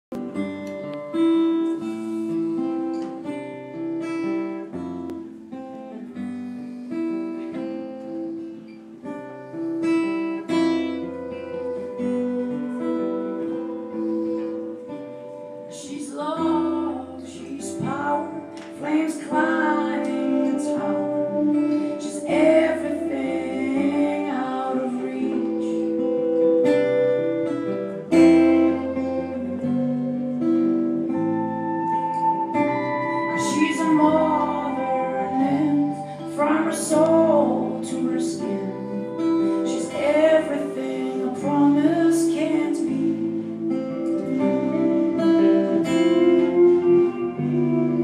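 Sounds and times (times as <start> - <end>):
acoustic guitar playing: 0.0 - 48.0
person singing: 10.4 - 48.0.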